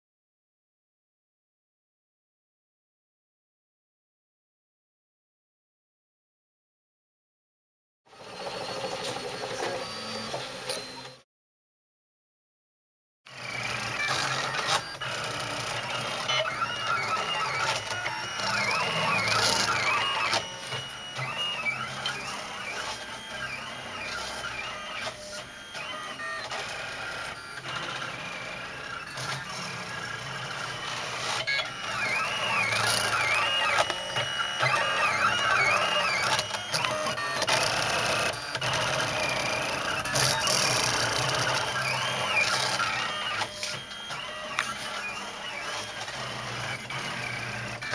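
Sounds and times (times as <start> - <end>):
printer stepper motors whining: 8.1 - 11.2, 13.3 - 47.9.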